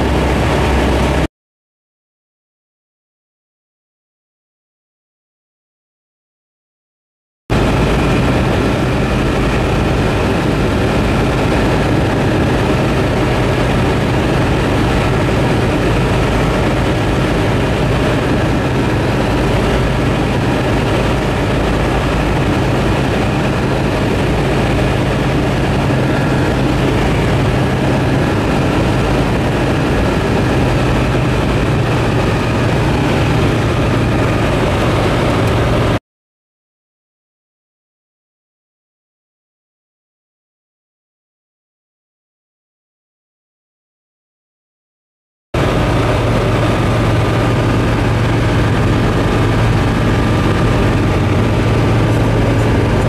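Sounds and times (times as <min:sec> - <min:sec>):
light aircraft engine and propeller drone: 0:00.0 - 0:01.3, 0:07.5 - 0:36.0, 0:45.6 - 0:53.0.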